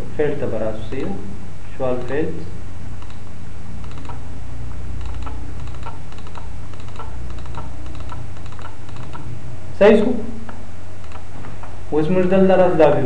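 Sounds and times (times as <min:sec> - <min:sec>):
low electrical hum: 0:00.0 - 0:13.0
computer mouse clicks: 0:02.0 - 0:02.2, 0:03.0 - 0:04.2, 0:05.0 - 0:09.3, 0:10.5 - 0:11.7.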